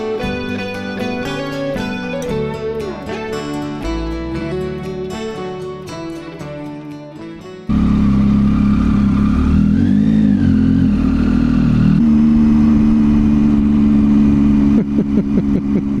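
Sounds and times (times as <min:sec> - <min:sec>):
guitar music: 0:00.0 - 0:16.0
motorcycle engine running: 0:07.7 - 0:16.0.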